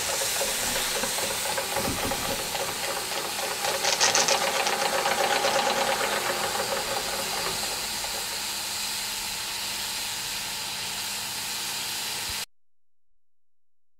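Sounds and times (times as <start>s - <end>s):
steam engine chuffing: 0.0s - 11.1s
steam hissing: 0.0s - 12.4s.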